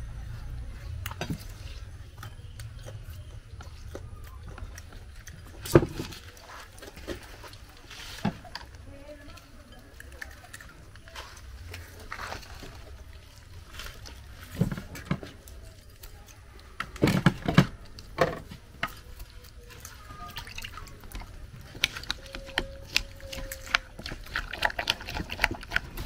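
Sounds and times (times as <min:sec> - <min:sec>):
liquid sloshing and dribbling: 0:17.0 - 0:26.0.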